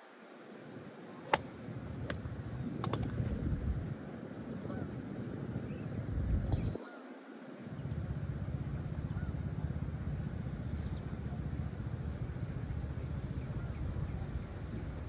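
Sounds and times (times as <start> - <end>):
wind buffeting microphone: 2.0 - 4.0.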